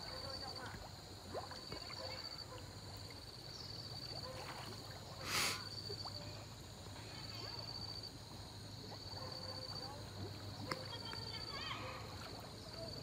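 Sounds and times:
water lapping: 0:00.0 - 0:13.0
water splash: 0:03.9 - 0:06.2.

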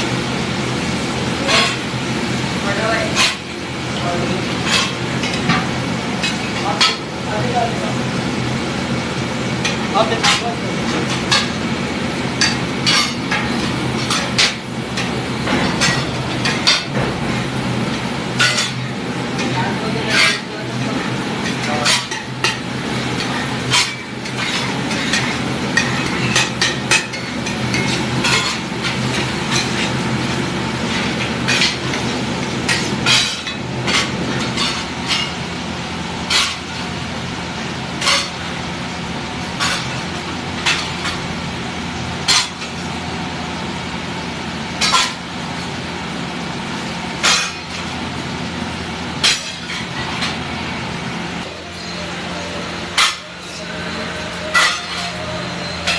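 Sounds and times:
metal spatulas scraping a griddle: 0:01.4 - 0:01.8, 0:04.6 - 0:05.6, 0:18.4 - 0:20.8, 0:21.4 - 0:30.0, 0:32.7 - 0:35.4, 0:36.3 - 0:36.7, 0:38.0 - 0:38.4, 0:39.6 - 0:40.0, 0:47.2 - 0:47.7, 0:53.0 - 0:55.9.

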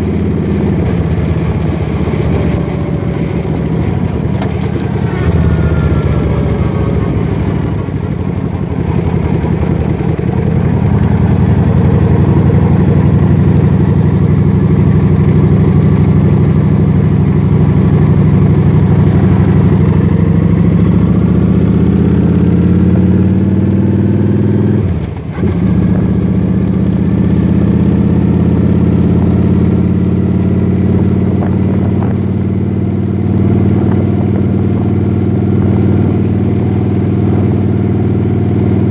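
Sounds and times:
vehicle engine running: 0:00.0 - 0:38.9.

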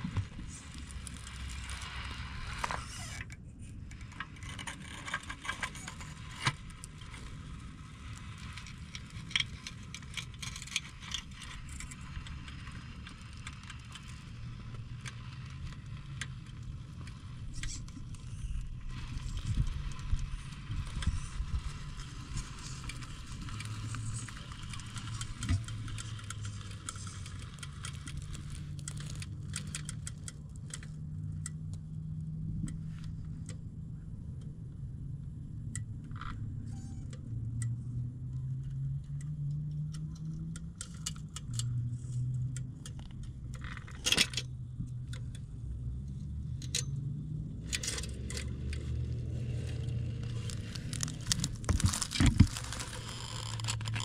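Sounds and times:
chassis and tyres rattling on rock: 0:03.8 - 0:31.0, 0:40.1 - 0:54.0.

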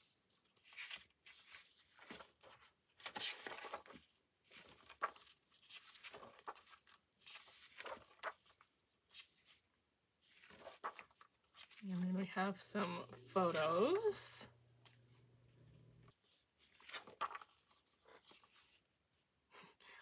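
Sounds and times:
paper pages turning: 0:00.0 - 0:12.2, 0:13.0 - 0:14.2, 0:14.8 - 0:18.8.

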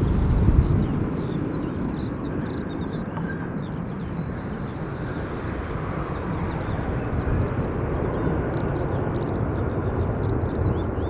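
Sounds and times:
low jet roar: 0:00.0 - 0:11.0
small birds chirping: 0:00.0 - 0:11.0.

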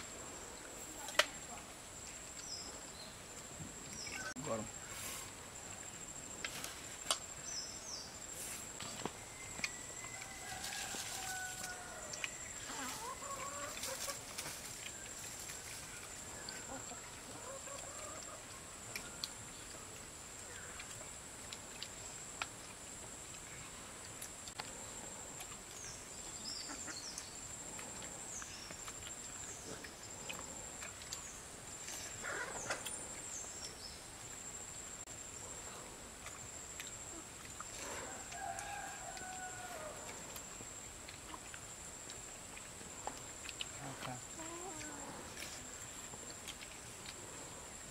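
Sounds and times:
chickens clucking: 0:12.2 - 0:14.8, 0:16.4 - 0:19.2, 0:26.6 - 0:27.3, 0:43.8 - 0:45.3.

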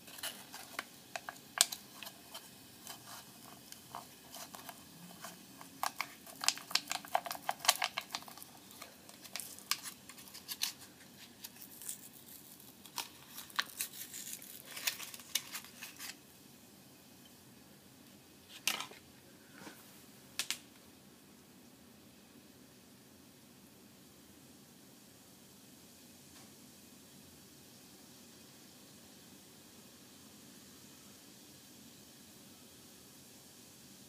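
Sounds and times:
liquid bubbling and fizzing: 0:00.0 - 0:17.1.

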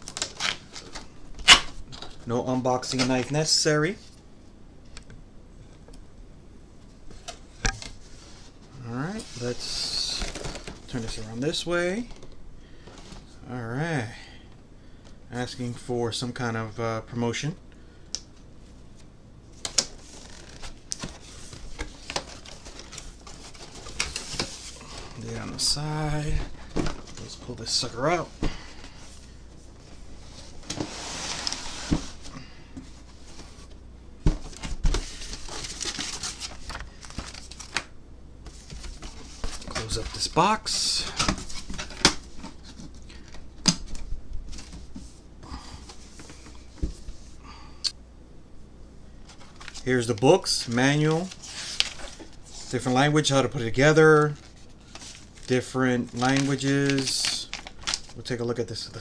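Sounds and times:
paper and cardboard rustling: 0:09.2 - 0:12.2, 0:19.6 - 0:45.2, 0:49.2 - 0:53.0, 0:53.8 - 0:58.2
cardboard scraping rustles: 0:19.9 - 0:32.3.

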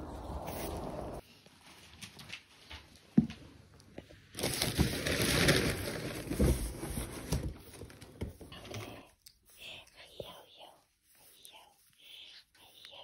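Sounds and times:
rustling: 0:04.2 - 0:12.9.

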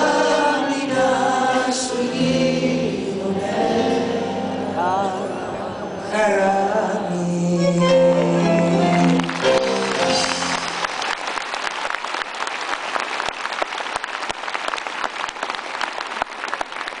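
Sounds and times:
live band final chord: 0:07.6 - 0:10.9
audience applause: 0:08.7 - 0:17.0.

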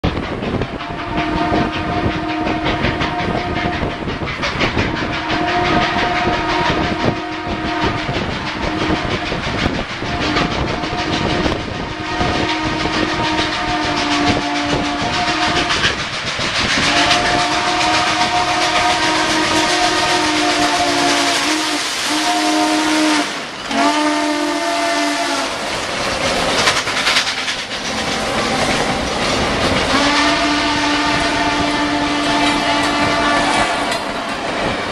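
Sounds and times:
moving train clatter: 0:00.0 - 0:34.9
train whistle chord blasts: 0:00.8 - 0:04.0, 0:04.9 - 0:16.0, 0:16.8 - 0:25.6, 0:29.8 - 0:34.0.

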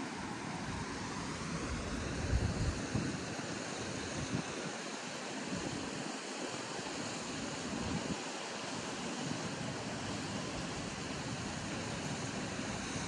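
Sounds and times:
river water rushing over rapids: 0:00.0 - 0:13.0
wind buffeting microphone: 0:01.6 - 0:03.3.

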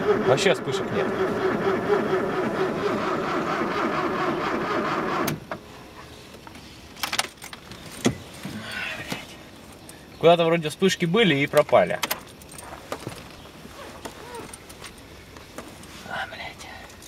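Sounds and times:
car starter cranking: 0:00.0 - 0:05.5.

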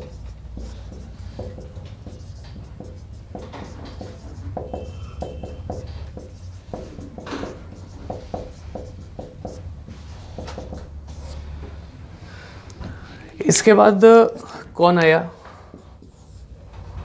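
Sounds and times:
whiteboard marker squeaking: 0:00.0 - 0:11.4.

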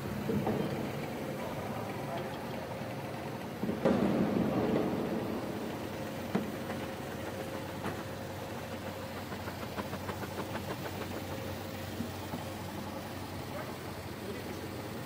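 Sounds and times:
machinery humming: 0:00.0 - 0:15.0.

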